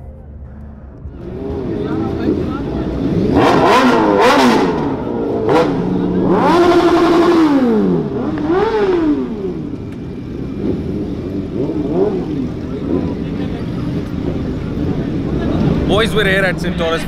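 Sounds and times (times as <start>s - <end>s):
motorcycle engines revving: 1.0s - 17.0s.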